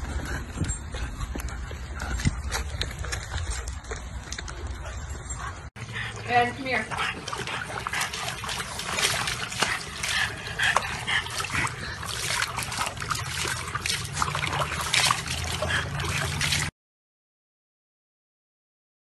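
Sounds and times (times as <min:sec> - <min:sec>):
water splashing in plastic tub: 0:06.3 - 0:16.7.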